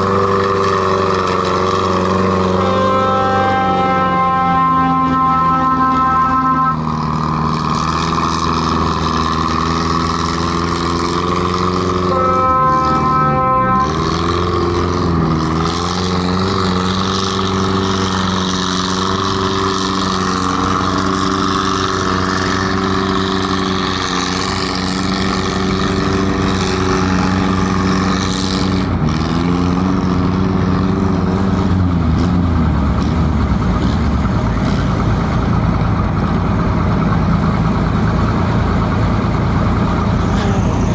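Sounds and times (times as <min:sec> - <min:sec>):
steady horn tone: 0:00.0 - 0:32.3
tractor engines running loudly: 0:00.0 - 0:40.9.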